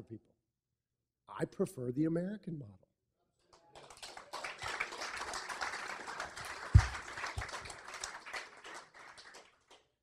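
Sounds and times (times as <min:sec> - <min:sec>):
audience applauding: 0:03.6 - 0:09.9.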